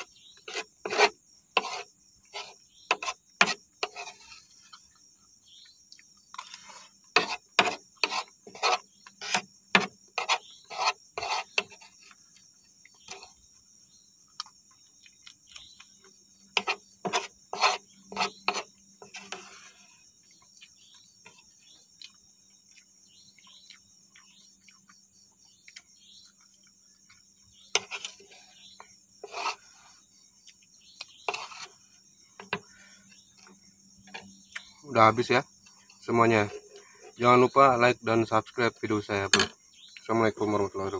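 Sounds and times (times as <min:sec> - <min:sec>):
metal spoon scraping wooden board: 0:00.0 - 0:04.8, 0:06.4 - 0:12.2, 0:13.0 - 0:13.4, 0:16.5 - 0:20.0, 0:27.5 - 0:30.0, 0:31.1 - 0:32.7, 0:36.2 - 0:37.2
crickets chirring: 0:00.0 - 0:40.9
chewing: 0:14.3 - 0:16.1, 0:20.2 - 0:27.3.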